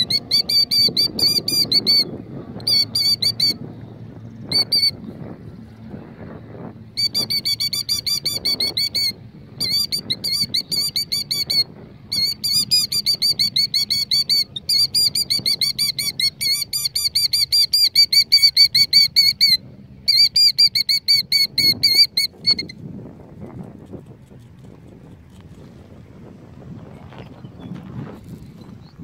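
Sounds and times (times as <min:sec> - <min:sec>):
bird trilling alarm call: 0:00.0 - 0:03.6, 0:04.3 - 0:05.0, 0:07.0 - 0:22.8.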